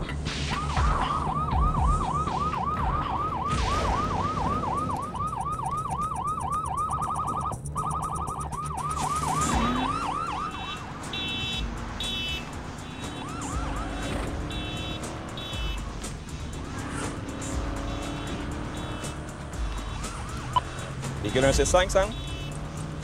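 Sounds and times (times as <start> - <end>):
police siren wailing: 0.4 - 23.0
car horn blasts: 10.5 - 15.8, 17.8 - 19.3, 21.9 - 22.6.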